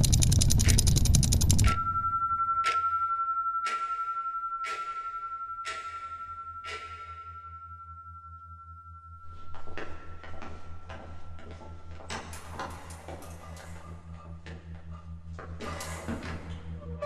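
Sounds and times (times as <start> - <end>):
low hum: 0.0 - 3.6
high ringing tone: 1.4 - 11.8.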